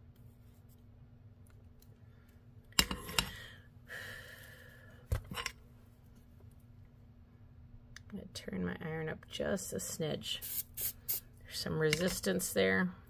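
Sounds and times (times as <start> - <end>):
faint steady hum: 0.0 - 13.0
tools clicking and knocking: 2.8 - 3.3.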